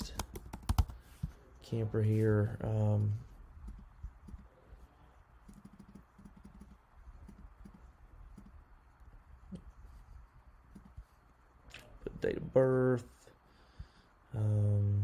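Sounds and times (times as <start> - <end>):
low steady hum: 0.0 - 15.0
computer mouse clicks: 3.6 - 4.5, 5.4 - 8.6.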